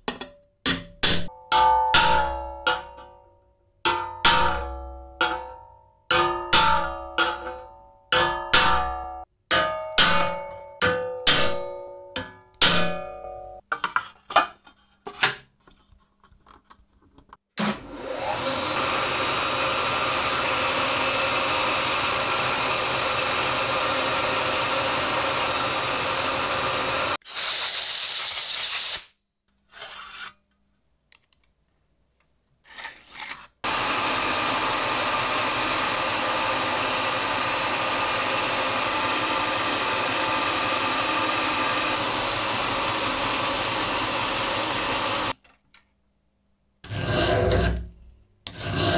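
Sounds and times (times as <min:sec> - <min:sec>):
milling machine cutting metal: 0:17.9 - 0:27.2, 0:33.7 - 0:45.4.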